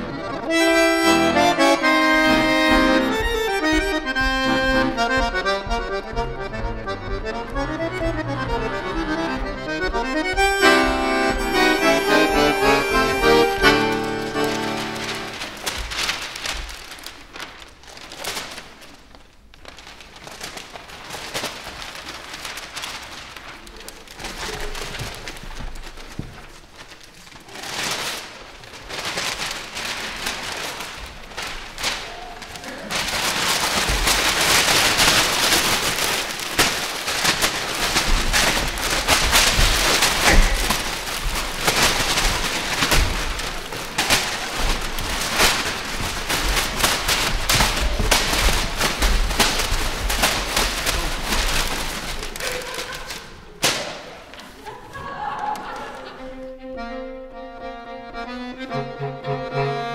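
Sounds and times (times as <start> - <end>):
paper crumpling and rustling: 11.4 - 56.2.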